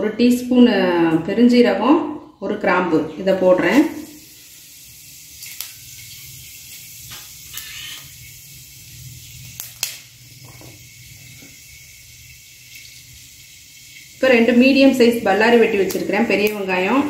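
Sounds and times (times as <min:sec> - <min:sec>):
spices sizzling in hot oil: 0:03.4 - 0:17.0
sharp crackles: 0:05.4 - 0:08.2, 0:09.2 - 0:10.8.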